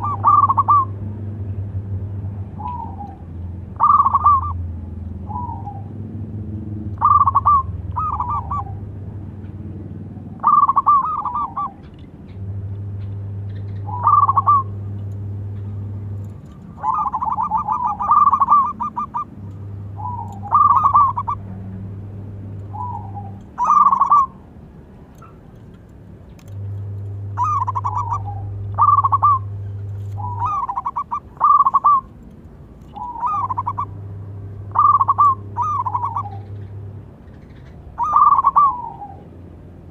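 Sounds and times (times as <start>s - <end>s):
dove cooing: 0.0s - 1.0s, 2.6s - 4.6s, 7.0s - 8.9s, 10.3s - 12.0s, 13.5s - 24.4s, 27.2s - 32.2s, 32.9s - 34.0s, 34.6s - 39.4s
low steady hum: 0.0s - 39.9s.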